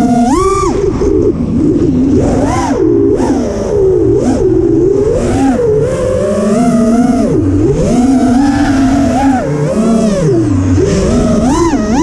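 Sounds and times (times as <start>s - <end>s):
quadcopter motors whining: 0.0s - 12.0s.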